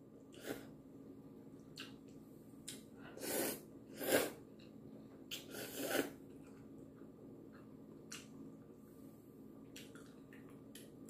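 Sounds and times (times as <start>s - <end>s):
noodles being slurped: 5.3s - 6.2s.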